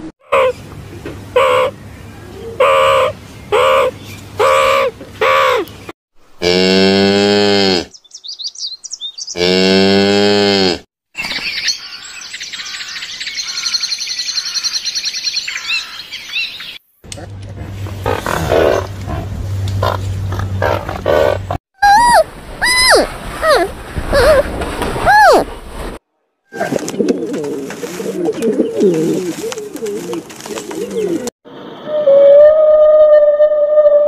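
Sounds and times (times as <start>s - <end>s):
meerkat calling: 2.6s - 5.6s.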